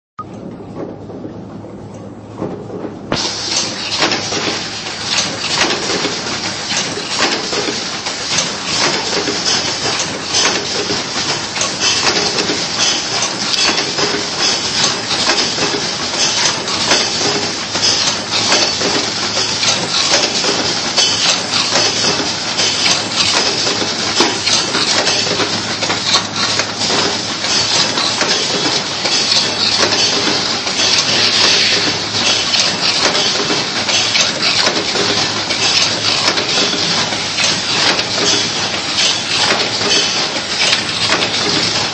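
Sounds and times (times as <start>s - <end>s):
machine clattering: 2.4s - 41.9s.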